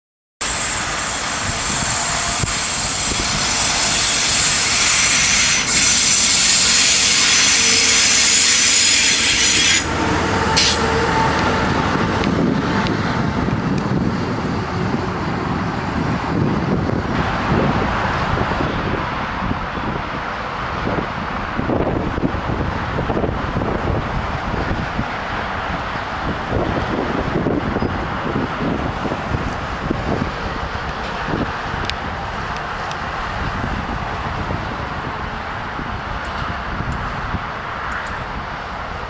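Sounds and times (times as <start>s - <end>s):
high wheel squeal: 0.4s - 13.3s
freight train wheels on rails: 0.4s - 39.0s
low train rumble: 0.4s - 39.0s.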